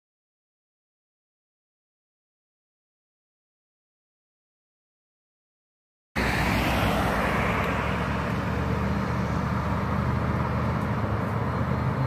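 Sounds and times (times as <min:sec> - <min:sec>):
low engine hum: 0:06.2 - 0:12.0
road noise hiss: 0:06.2 - 0:12.0.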